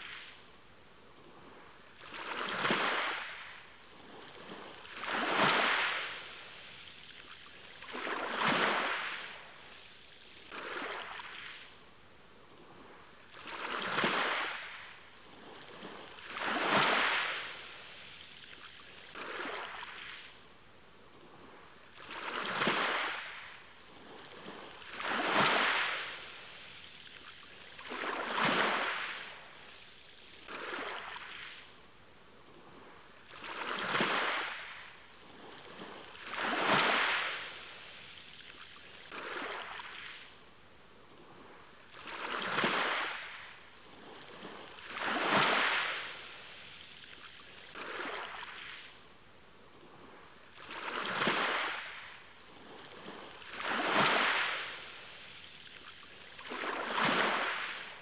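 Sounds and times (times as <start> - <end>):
ocean waves breaking on shore: 0.0 - 58.0.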